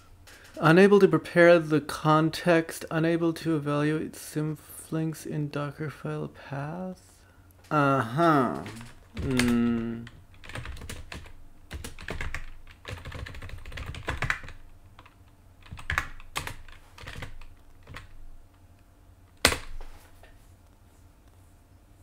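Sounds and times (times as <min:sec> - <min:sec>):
typing on a keyboard: 0:08.6 - 0:18.1.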